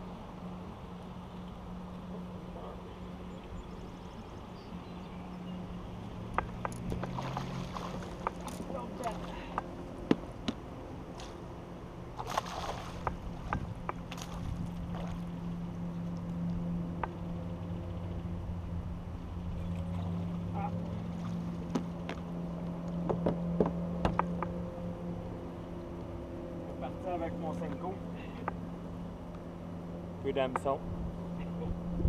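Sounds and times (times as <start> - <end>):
steady low hum: 0.0 - 32.0
water splashing: 6.4 - 11.4, 12.1 - 16.2.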